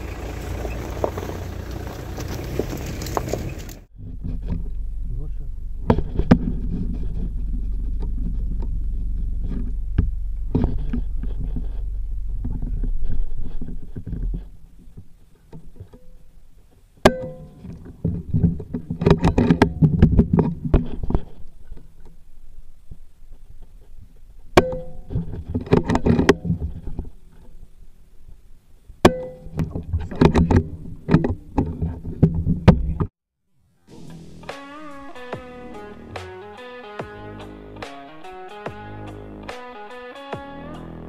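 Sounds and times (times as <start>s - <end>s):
steady low rumble: 3.8s - 15.2s
rustling and handling knocks: 5.8s - 22.2s.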